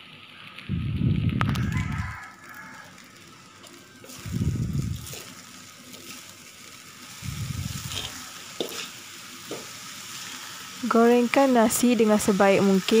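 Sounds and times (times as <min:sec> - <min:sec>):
fried rice sizzling in wok: 0:00.0 - 0:13.0
metal spatula scraping: 0:03.6 - 0:06.4, 0:07.0 - 0:10.6.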